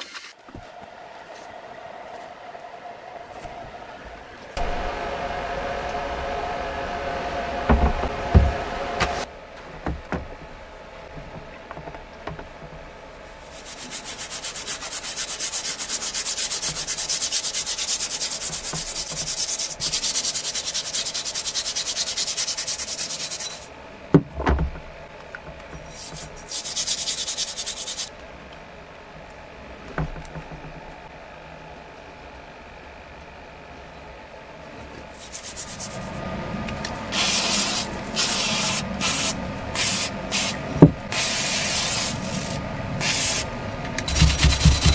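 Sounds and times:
steel wool scrubbing metal: 13.4s - 23.7s, 35.1s - 36.2s, 37.1s - 44.9s.

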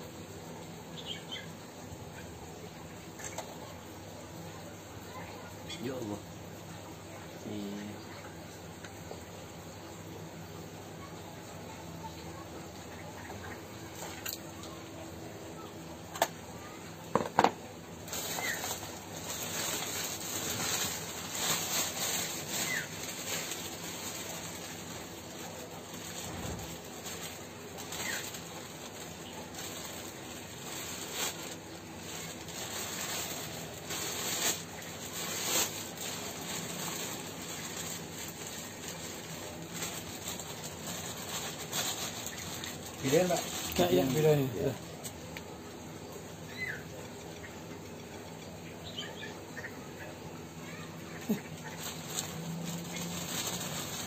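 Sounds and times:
plastic bag rustling: 17.1s - 45.6s, 50.5s - 54.0s.

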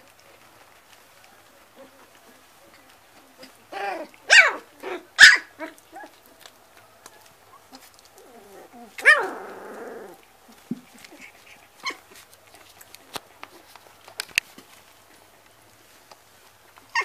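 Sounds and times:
puppies yipping: 3.7s - 6.4s, 7.2s - 13.8s
faint small clicks: 12.5s - 16.9s.

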